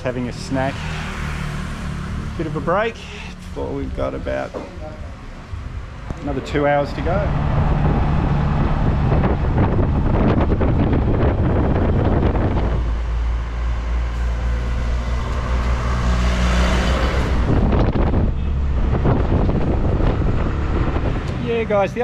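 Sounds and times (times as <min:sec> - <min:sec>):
road noise: 0:00.0 - 0:22.0
auto-rickshaw engine running: 0:05.8 - 0:22.0.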